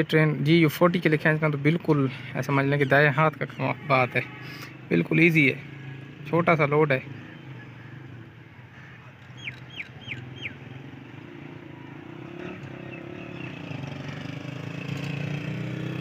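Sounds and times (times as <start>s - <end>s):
bird chirping: 9.0s - 11.2s, 12.2s - 14.4s.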